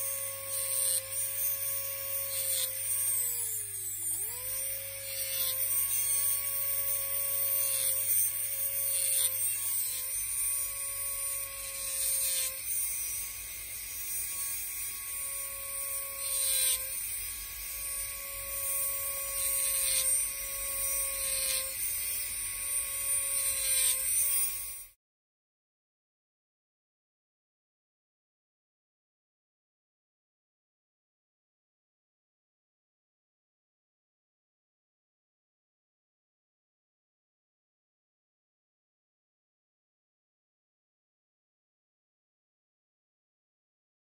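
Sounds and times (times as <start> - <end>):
rotary tool whining: 0.0 - 25.0.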